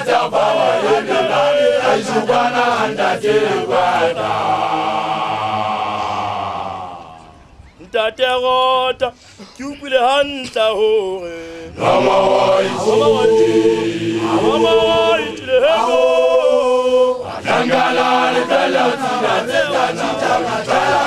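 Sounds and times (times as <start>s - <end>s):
group of voices chanting: 0.0s - 7.4s, 11.8s - 21.0s
lone male voice leading a chant: 12.6s - 18.6s.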